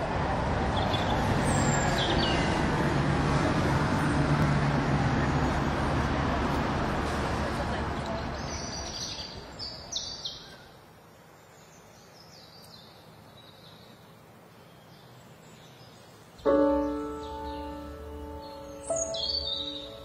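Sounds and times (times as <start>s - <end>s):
background hiss: 8.6s - 20.0s
high bird chirps: 16.4s - 20.0s
keyboard chord ringing: 16.5s - 20.0s.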